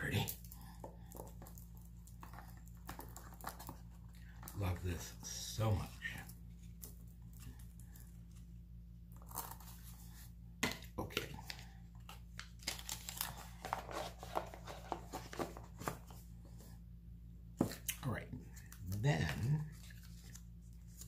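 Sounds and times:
low electrical hum: 0.0 - 21.0
packaging crinkling and rustling: 1.1 - 4.6, 11.4 - 16.2.

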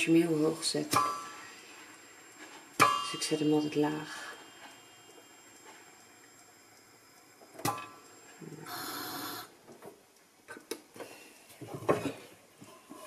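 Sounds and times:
popcorn popping: 0.0 - 11.1.

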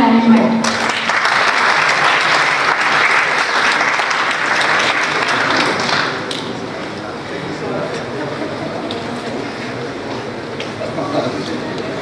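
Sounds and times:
crowd clapping: 0.6 - 6.8.

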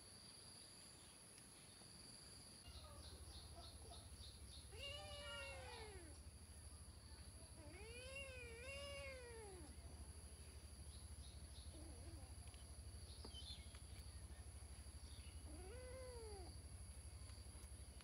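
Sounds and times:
kitten meowing: 4.7 - 6.2, 7.6 - 9.8, 15.4 - 16.5.

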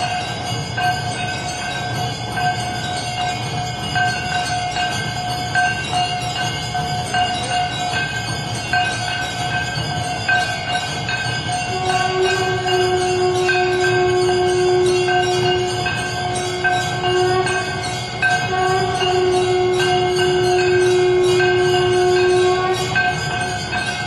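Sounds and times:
temple bells ringing: 0.0 - 24.0
long steady lower tone: 11.6 - 24.0.

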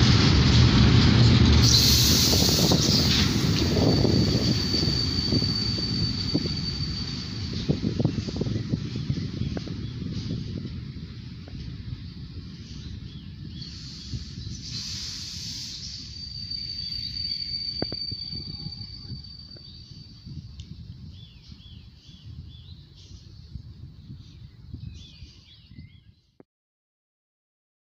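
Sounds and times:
train wheels rumbling on rails: 0.0 - 24.0
thin high squeal: 1.6 - 8.4, 13.8 - 20.3
brief hiss: 13.6 - 16.2.

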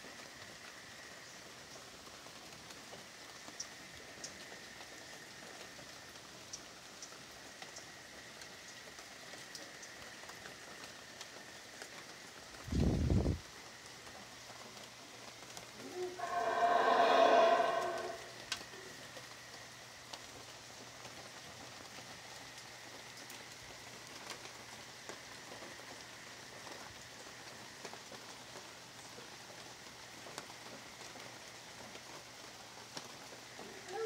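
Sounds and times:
light rain pattering: 0.0 - 34.0
howler monkey roaring: 15.8 - 18.4.

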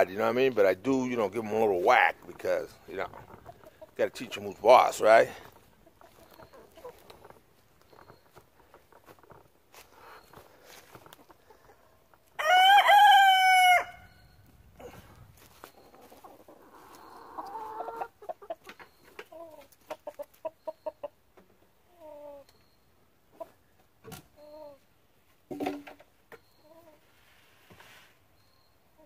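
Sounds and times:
chickens clucking: 0.0 - 12.4, 14.4 - 24.9, 25.6 - 28.0
rooster crowing: 12.4 - 14.2.

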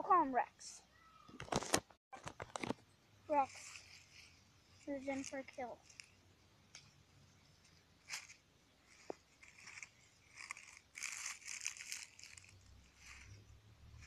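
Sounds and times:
dry leaves rustling and crackling: 3.4 - 6.1, 8.0 - 14.0.

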